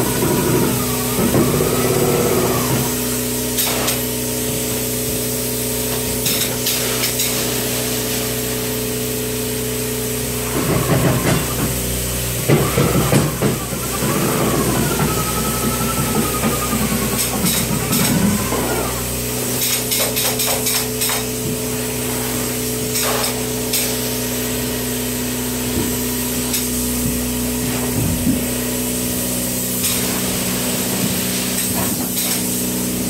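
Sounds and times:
steady machine hum: 0.0 - 19.9
spray foam gun hissing: 0.0 - 24.8, 27.7 - 33.0.

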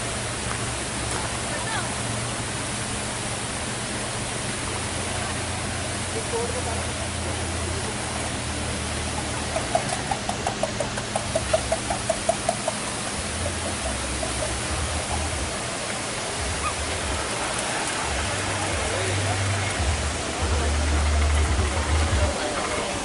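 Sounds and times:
waterfall rushing over rock: 0.0 - 23.0.

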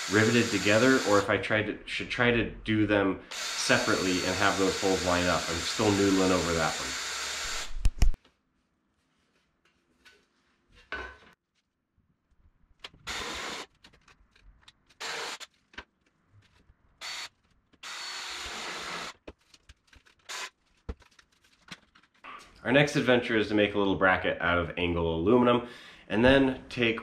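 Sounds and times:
cordless drill drilling metal: 0.0 - 1.3, 3.3 - 8.2, 13.1 - 13.7, 15.0 - 15.4, 17.0 - 19.2, 20.3 - 20.5.

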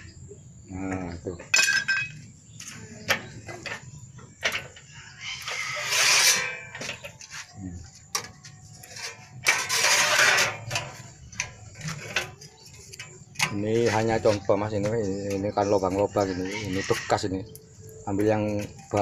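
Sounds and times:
sharp metal clanks: 1.5 - 2.2
sheet metal rasping: 4.4 - 7.5, 8.1 - 14.5.

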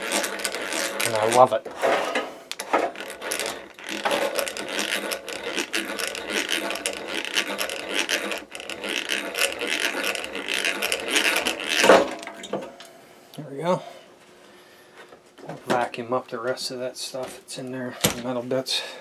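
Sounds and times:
hand drill gears whirring and clicking: 0.0 - 1.7, 2.5 - 12.2.

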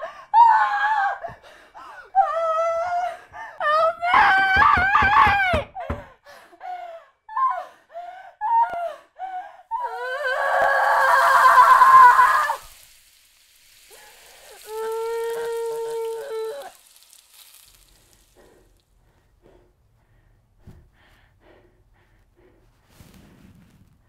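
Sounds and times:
woman crying wail: 0.0 - 1.3, 2.1 - 7.7, 8.4 - 8.9, 9.7 - 12.7, 14.5 - 16.8
woman screaming: 2.2 - 5.8, 9.7 - 12.8, 14.4 - 16.8.

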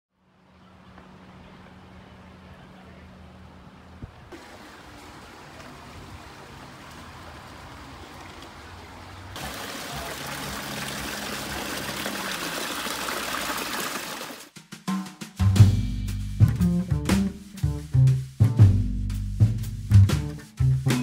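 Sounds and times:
small waterfall splashing: 4.3 - 14.5.

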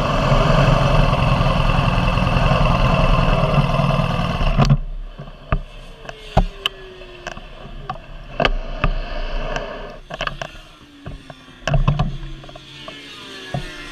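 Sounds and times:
sharp clicks and knocks: 4.5 - 13.8.

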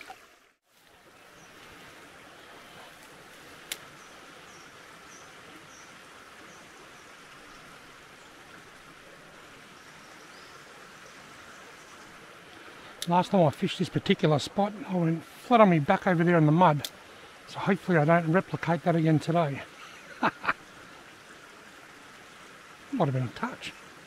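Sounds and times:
creek water rushing: 0.0 - 24.0.

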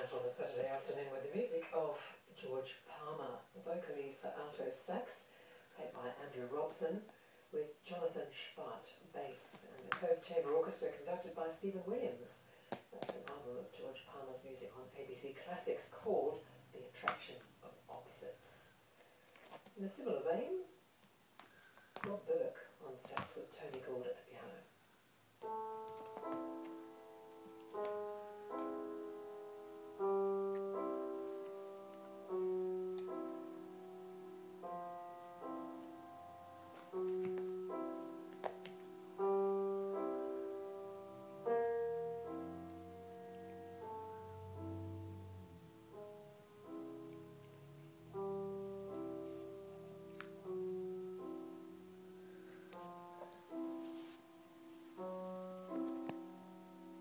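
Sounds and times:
slow piano chords: 25.4 - 57.0.

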